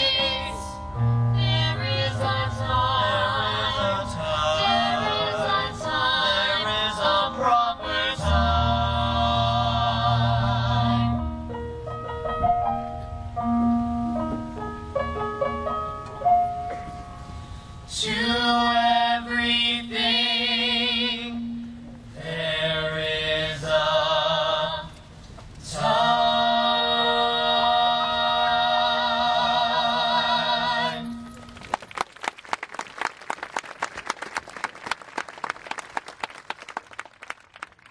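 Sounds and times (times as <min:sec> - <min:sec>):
vocal trio singing in harmony: 0:00.0 - 0:11.4, 0:17.8 - 0:31.3.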